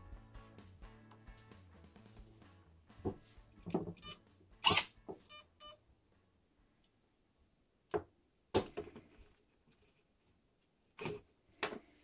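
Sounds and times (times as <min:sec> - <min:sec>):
short high bleeps: 0:04.0 - 0:05.8.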